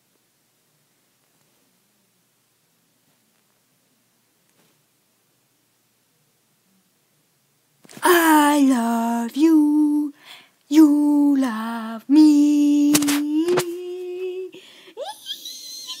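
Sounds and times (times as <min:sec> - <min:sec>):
young person singing: 0:07.9 - 0:15.2.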